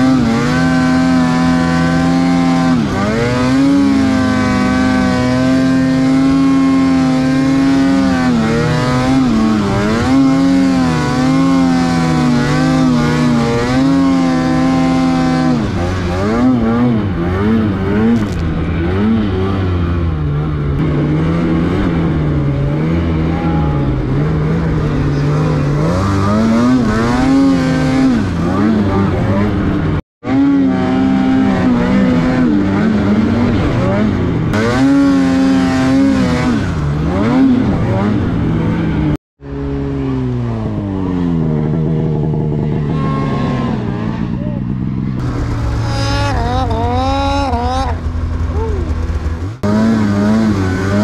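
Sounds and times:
snowmobile engine revving: 0.0 - 51.0.

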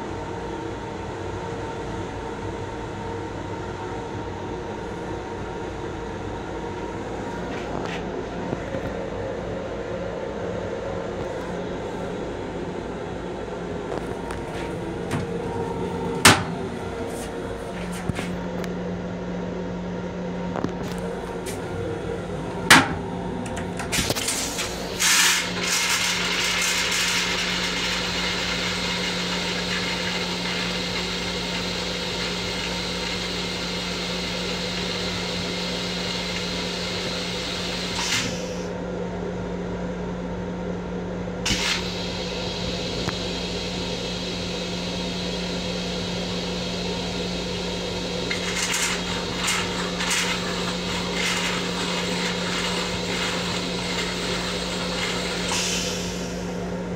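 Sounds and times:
railcar steady hum: 0.0 - 56.9
toilet flush click: 22.7 - 38.4, 41.5 - 42.1, 48.3 - 56.3
water rinsing toilet bowl: 24.2 - 38.0, 48.2 - 56.0.

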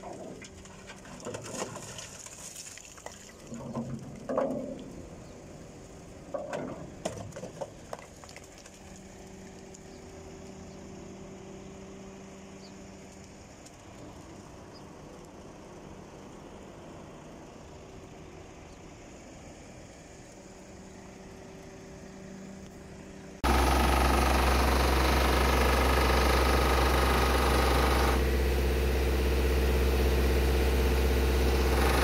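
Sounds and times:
diesel engine idling: 14.1 - 32.0.

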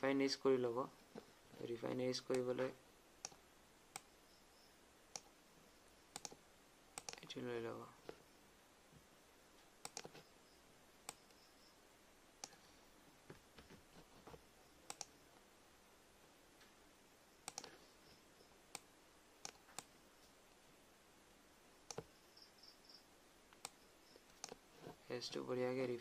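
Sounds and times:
faint room hiss: 0.0 - 26.0
computer mouse clicking: 3.2 - 4.1, 5.1 - 5.3, 6.1 - 6.4, 7.0 - 7.3, 9.8 - 10.2, 11.1 - 11.4, 12.4 - 12.6, 14.1 - 15.2, 17.4 - 17.8, 18.7 - 19.9, 21.8 - 22.1, 23.5 - 24.6.

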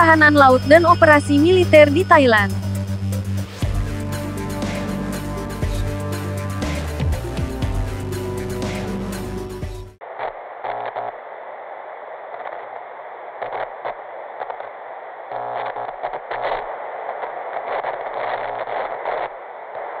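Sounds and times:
background music: 0.0 - 10.0
tv static hiss with crackles: 10.0 - 20.0.

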